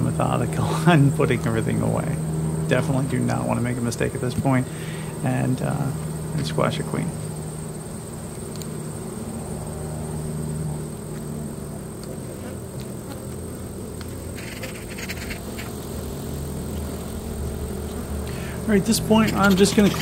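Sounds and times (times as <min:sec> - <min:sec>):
bees humming: 0:00.0 - 0:20.0
wooden hive parts clicking: 0:16.7 - 0:20.0.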